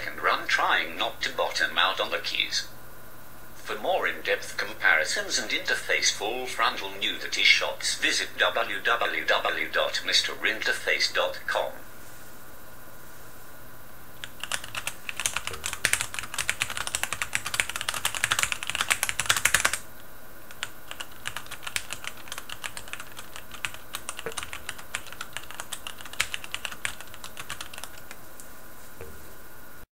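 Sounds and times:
keyboard typing: 14.2s - 19.8s, 20.5s - 28.2s.

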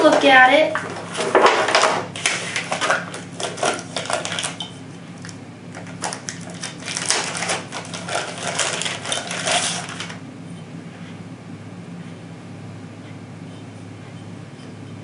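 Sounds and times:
plastic bag crinkling: 0.0s - 10.2s.

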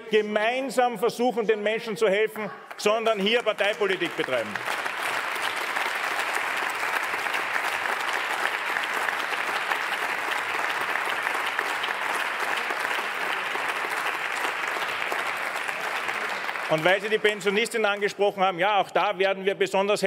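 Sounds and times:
crowd applauding: 2.7s - 18.2s.

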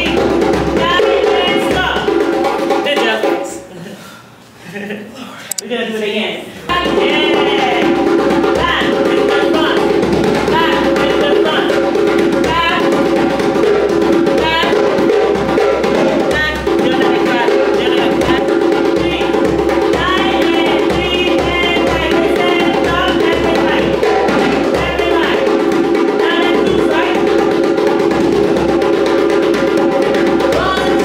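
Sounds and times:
hand drums and percussion: 0.0s - 3.5s, 6.7s - 31.0s.

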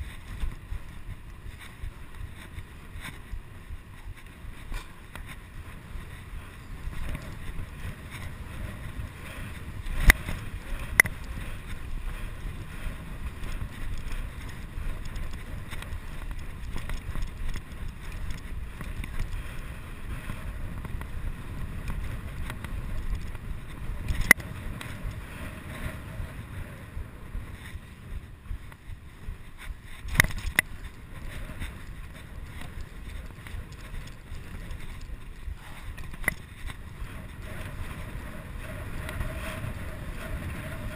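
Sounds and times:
bicycle tyres rumbling on brick: 0.0s - 40.9s
wind noise on microphone: 0.0s - 40.9s.

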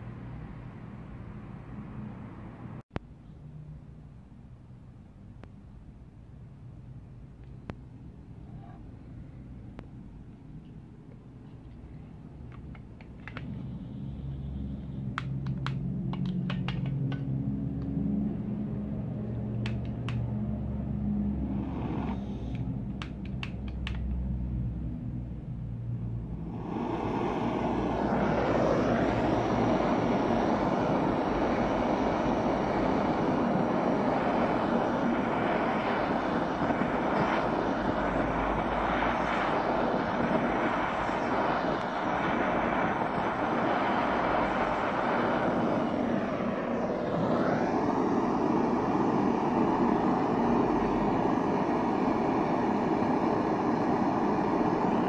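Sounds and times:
gas torch flame hissing: 11.9s - 24.6s, 26.2s - 55.0s.

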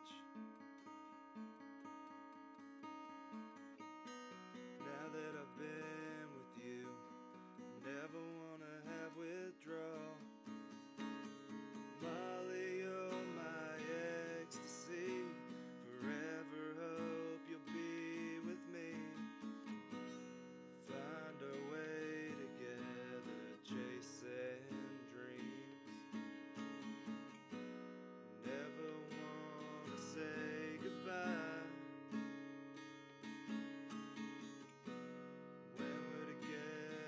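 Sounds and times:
acoustic guitar strumming: 0.0s - 37.0s
person singing: 4.7s - 10.4s, 11.6s - 20.2s, 20.8s - 26.2s, 28.4s - 32.3s, 35.7s - 37.0s.

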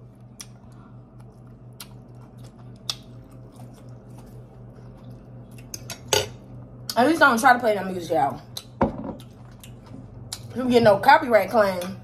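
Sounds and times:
close-mic chewing: 0.0s - 7.0s, 8.4s - 10.6s
steady low hum: 0.0s - 12.0s.

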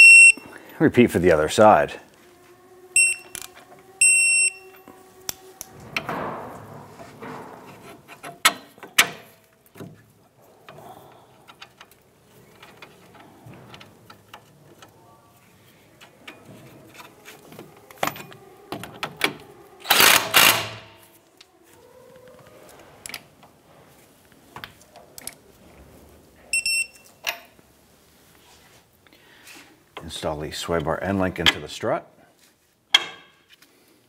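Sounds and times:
hand tools clicking and knocking on metal: 4.6s - 21.5s, 30.7s - 31.8s, 32.9s - 33.7s.

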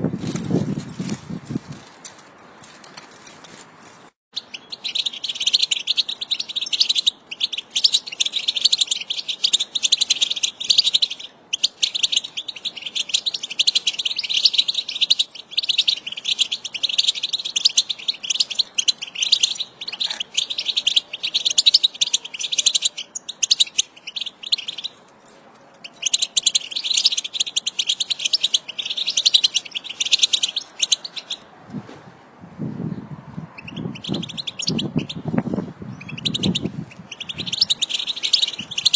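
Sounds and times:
finches twittering: 4.4s - 24.9s, 25.8s - 31.4s, 33.6s - 35.3s, 36.0s - 38.9s.

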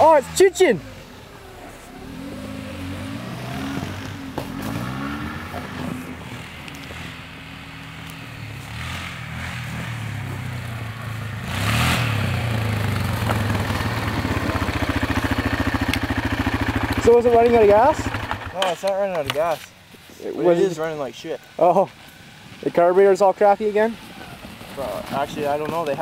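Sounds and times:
car engine revving: 0.0s - 19.3s
atv engine idling fast: 12.1s - 19.9s.

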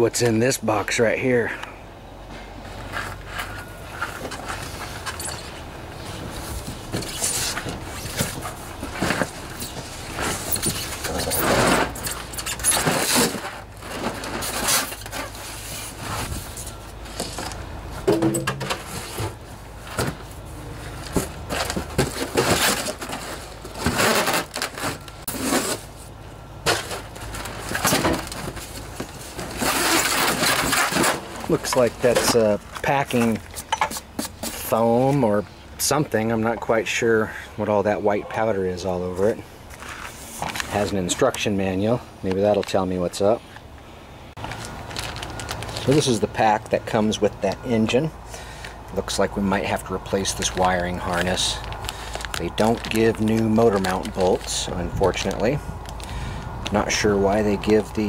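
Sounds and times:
cardboard box scraping and rustling: 6.1s - 17.6s, 18.5s - 26.0s, 26.6s - 32.4s.

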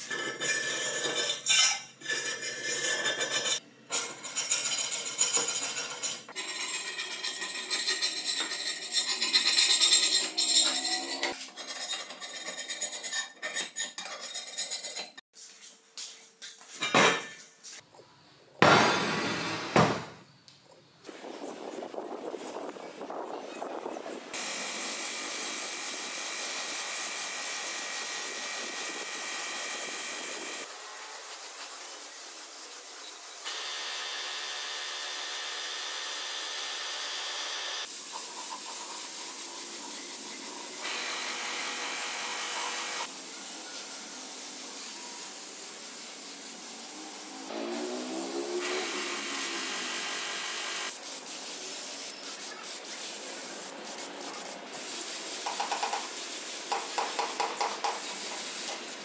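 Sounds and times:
spray gun hissing: 53.8s - 56.8s.

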